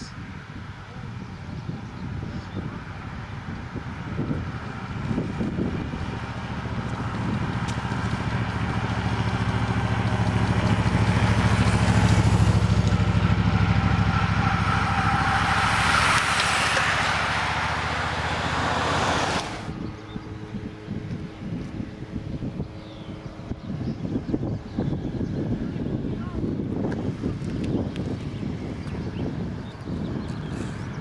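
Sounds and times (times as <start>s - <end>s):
vehicle engine running: 0.0s - 31.0s
rushing hiss of tyres and air: 14.3s - 19.7s.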